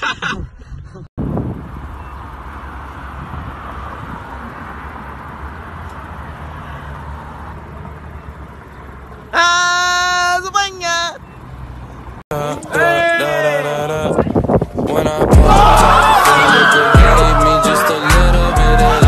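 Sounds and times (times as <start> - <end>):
passing cars rumbling: 1.2 - 19.0.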